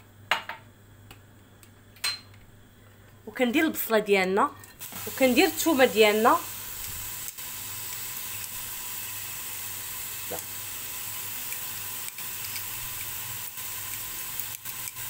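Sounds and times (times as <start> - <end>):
onion sizzling in oil: 4.8 - 15.0.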